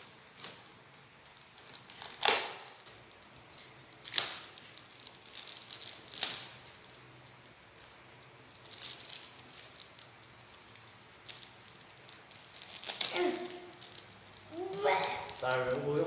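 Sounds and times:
plastic bag crinkling: 4.0s - 6.9s, 8.5s - 15.8s.

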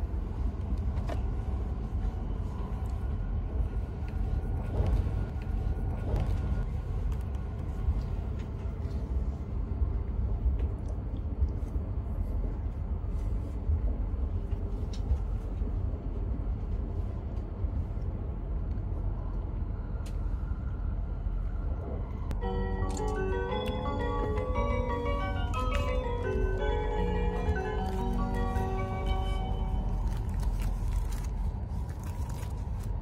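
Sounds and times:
train cabin low rumble: 0.0s - 33.0s.

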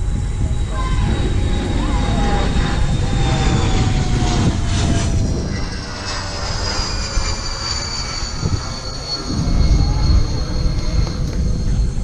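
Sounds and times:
faint high whine falling in pitch: 0.0s - 12.0s
low rumble: 0.0s - 12.0s.

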